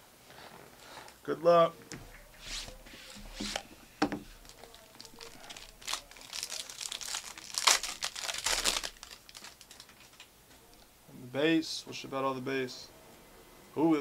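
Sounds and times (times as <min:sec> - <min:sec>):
foil pack tearing and crinkling: 0:04.4 - 0:10.3.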